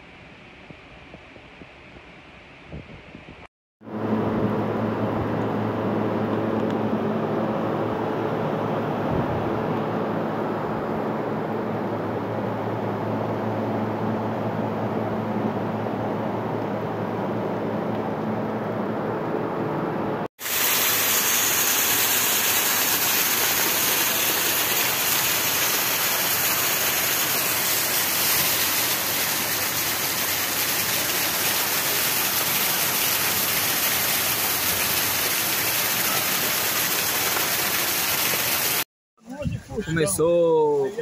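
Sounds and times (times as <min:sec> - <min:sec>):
dull low rushing noise: 0:03.9 - 0:20.3
heavy rain on pavement: 0:20.4 - 0:38.8.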